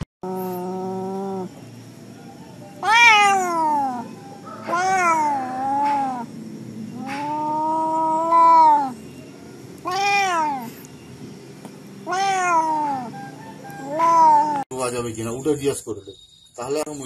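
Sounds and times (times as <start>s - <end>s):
cat meowing: 2.8s - 6.3s, 6.9s - 9.0s, 9.8s - 10.8s, 12.0s - 14.6s.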